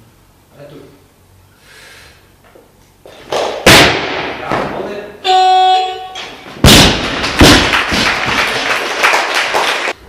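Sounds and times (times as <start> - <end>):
people clapping: 3.3 - 3.6, 7.0 - 10.0
buzzer tone: 5.2 - 6.4
barbell thudding on platform: 6.2 - 8.2.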